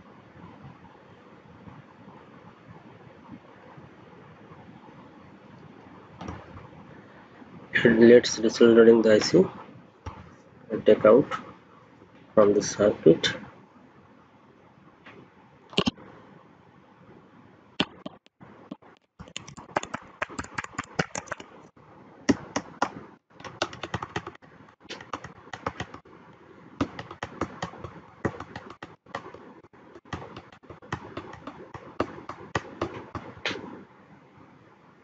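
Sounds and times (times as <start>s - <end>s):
sharp clicks and taps: 17.8s - 21.5s, 30.0s - 33.7s.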